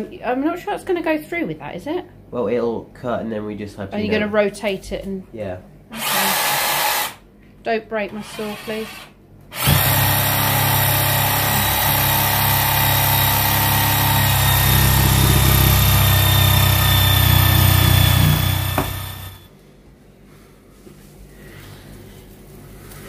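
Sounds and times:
jigsaw cutting wood: 0:05.9 - 0:07.2, 0:08.3 - 0:19.5.

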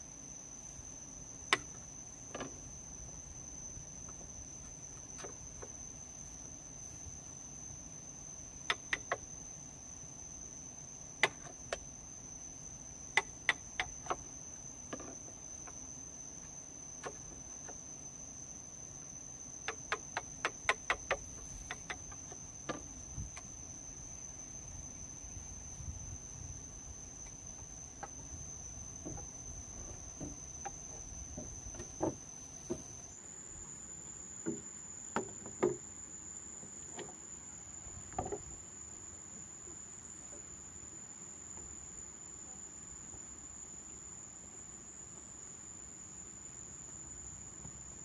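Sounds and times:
high insect drone: 0:00.0 - 0:48.0
sharp knocks: 0:29.0 - 0:33.0.

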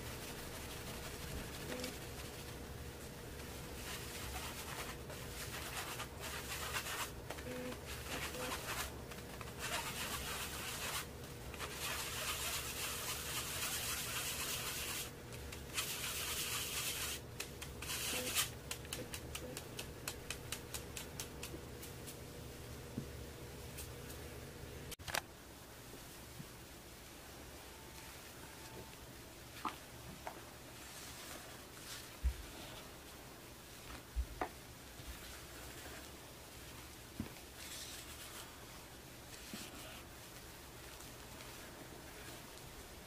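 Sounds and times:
powder rubbed through metal sieve: 0:00.0 - 0:19.3.

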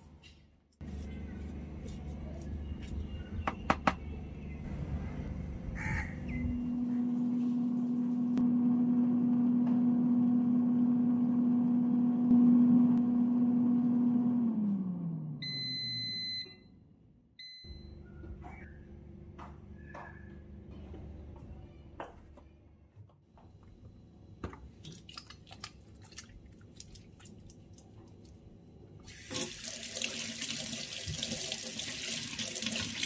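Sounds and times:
air fryer fan humming: 0:04.7 - 0:16.0.

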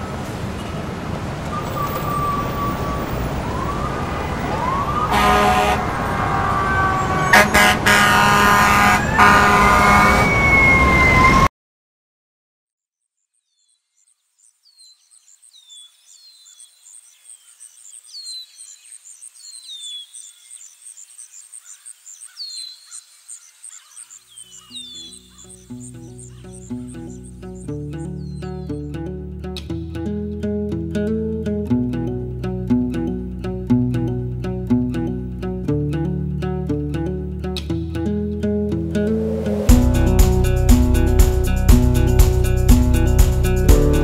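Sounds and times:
traffic: 0:00.0 - 0:11.5
sirens wailing: 0:01.4 - 0:11.5
birds chirping: 0:01.5 - 0:09.2, 0:13.3 - 0:29.1
car horns honking: 0:04.9 - 0:11.3
high thin bird trill: 0:23.4 - 0:28.9.

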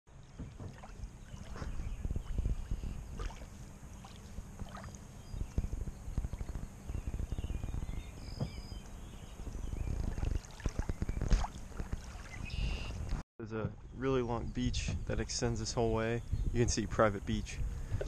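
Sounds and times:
wind buffeting microphone: 0:00.4 - 0:18.0
waves lapping on shore: 0:03.2 - 0:05.1.

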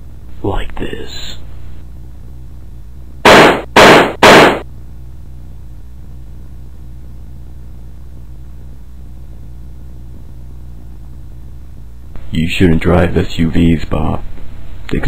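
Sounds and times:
steady low hum: 0:00.0 - 0:15.0
loud distorted blasts: 0:03.2 - 0:04.7.

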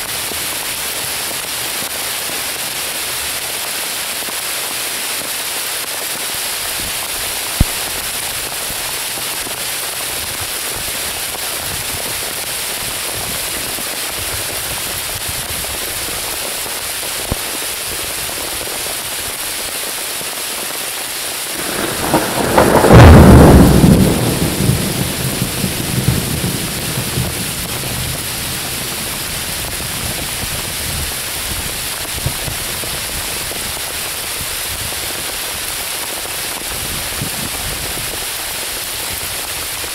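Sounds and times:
rain on forest canopy: 0:00.0 - 0:39.9
thunderclap rumbling: 0:21.5 - 0:32.7.

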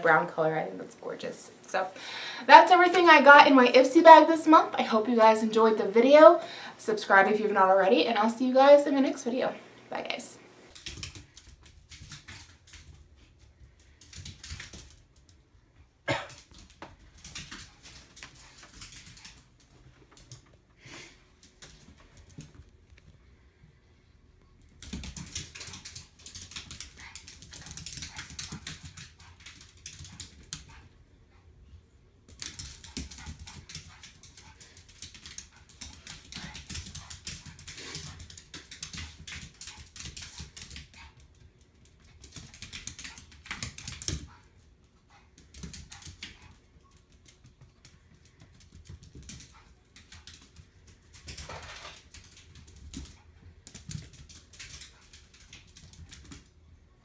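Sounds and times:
dog claws clicking on vinyl floor: 0:10.7 - 0:15.4, 0:24.6 - 0:30.9, 0:32.3 - 0:44.6, 0:45.4 - 0:56.5.

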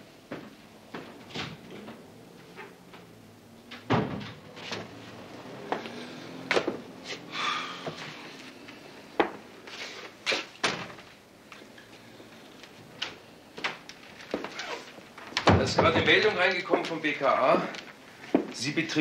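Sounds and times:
wavering creak: 0:14.4 - 0:15.0.

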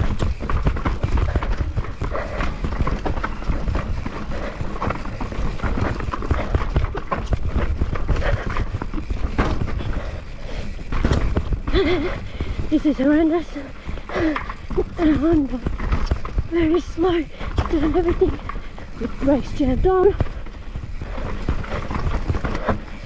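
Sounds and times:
mountain bike clattering over rocks: 0:00.0 - 0:23.0.

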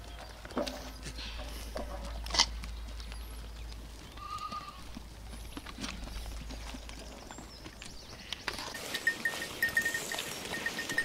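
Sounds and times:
goats feeding knocks and clicks: 0:00.0 - 0:11.0
goat call: 0:04.2 - 0:04.9.

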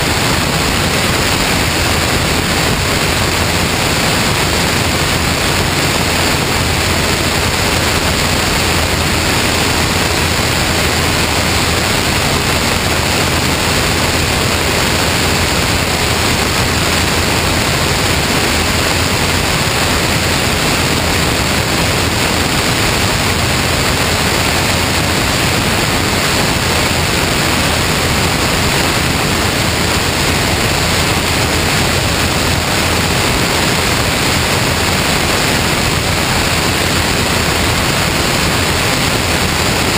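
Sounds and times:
airflow rushing over camera: 0:00.0 - 0:39.9.

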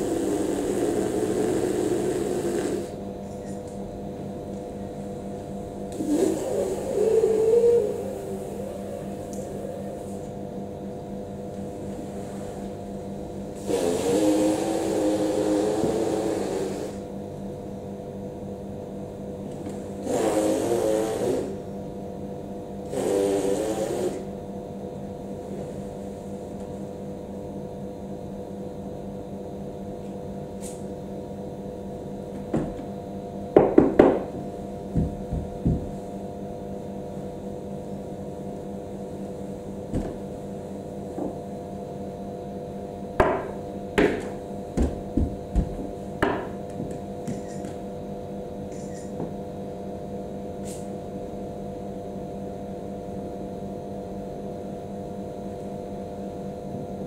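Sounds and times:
room hum: 0:00.0 - 0:57.0
knocks on wooden tabletop: 0:33.6 - 0:34.3, 0:43.2 - 0:47.4.

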